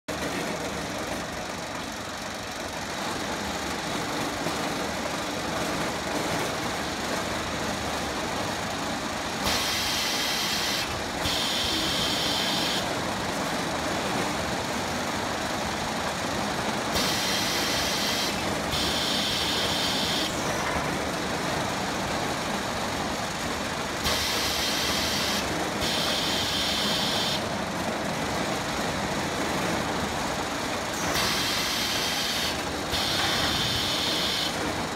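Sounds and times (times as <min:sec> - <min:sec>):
robot and conveyors humming: 0:09.4 - 0:13.1, 0:16.9 - 0:21.2, 0:30.9 - 0:34.8.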